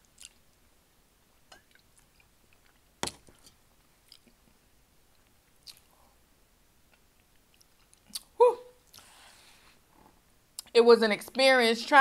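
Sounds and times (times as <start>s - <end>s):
person chewing: 0.0s - 0.5s, 1.5s - 4.5s, 5.1s - 6.0s, 6.9s - 9.1s.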